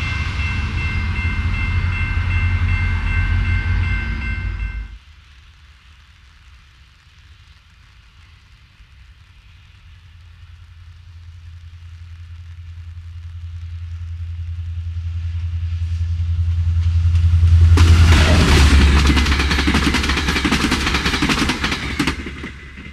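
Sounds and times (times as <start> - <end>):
diesel train rumble: 0.0 - 5.0, 12.9 - 22.9.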